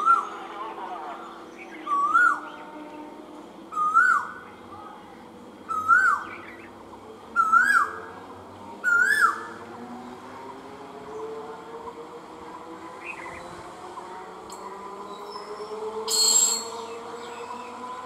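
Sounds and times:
bird whistled calls: 0:03.7 - 0:04.4, 0:05.7 - 0:06.6, 0:07.4 - 0:08.0, 0:08.8 - 0:09.5, 0:15.1 - 0:17.7.

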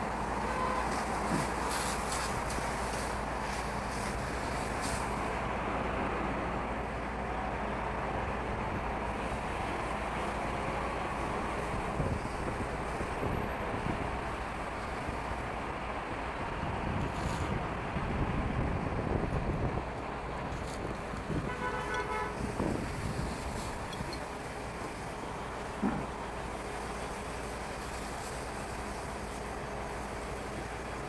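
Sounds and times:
highway traffic: 0:00.0 - 0:31.0
wind buffeting microphone: 0:11.4 - 0:15.2, 0:16.4 - 0:21.7, 0:22.3 - 0:24.8.

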